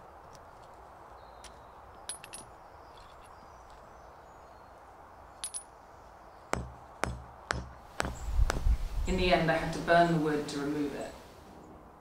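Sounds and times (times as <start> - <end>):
light metallic clinks: 1.4 - 3.4, 5.3 - 5.8
hammer blows on iron: 6.5 - 8.9.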